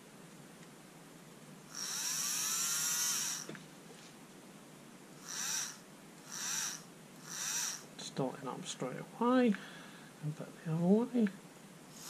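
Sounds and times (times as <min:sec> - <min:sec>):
electric motor whine: 0:01.7 - 0:03.6, 0:05.2 - 0:07.9.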